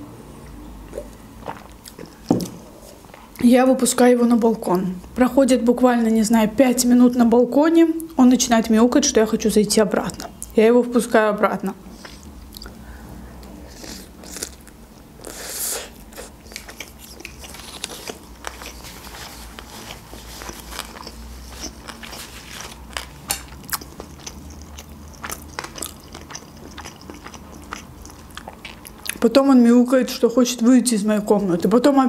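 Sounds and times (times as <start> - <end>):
biting and chewing food: 16.0 - 29.2
crunch: 16.2 - 29.2.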